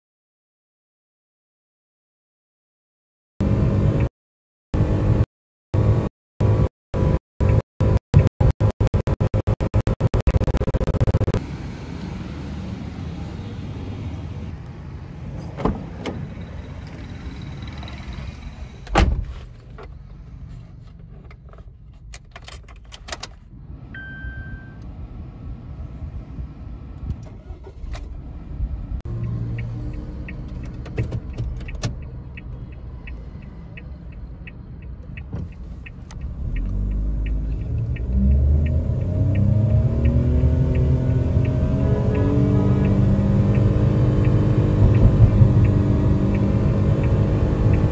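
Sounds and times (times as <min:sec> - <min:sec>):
car engine accelerating: 0:23.6 - 0:34.5, 0:36.0 - 0:47.9
two-tone beep: 0:24.0 - 0:24.8.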